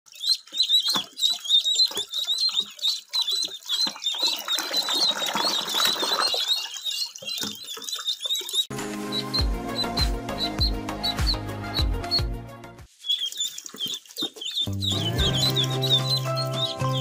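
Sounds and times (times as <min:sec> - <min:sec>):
water splashing in a paddling pool: 0:00.1 - 0:08.7, 0:13.2 - 0:14.7
ducklings peeping: 0:00.1 - 0:12.3, 0:13.0 - 0:17.0.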